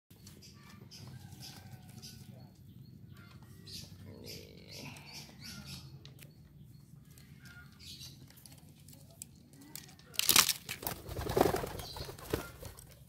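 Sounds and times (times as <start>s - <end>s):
pigeon wings flapping: 10.7s - 12.9s.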